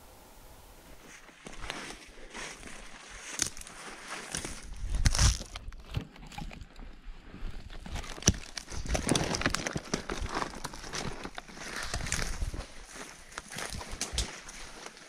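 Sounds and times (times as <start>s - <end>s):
brush rustling: 0.0s - 6.1s
footsteps crunching through undergrowth: 0.5s - 15.0s
twigs snapping: 3.2s - 6.6s, 7.8s - 15.0s.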